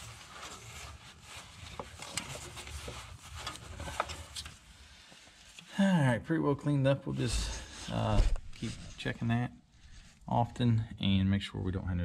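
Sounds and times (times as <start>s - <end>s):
rubbing and rustling of gloved hands: 0.0s - 5.7s, 7.0s - 10.4s.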